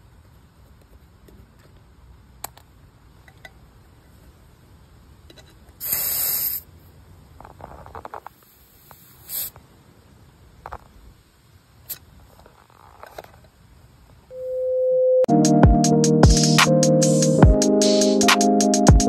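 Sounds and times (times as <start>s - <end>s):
air hissing from tire valve: 5.8s - 6.7s, 8.4s - 9.6s.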